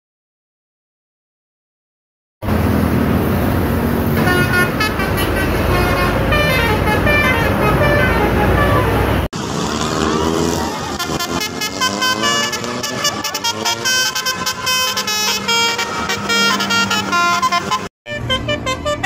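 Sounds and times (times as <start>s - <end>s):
engine and traffic noise: 2.4s - 19.0s
bus musical horn tunes: 4.1s - 9.3s, 10.8s - 19.0s.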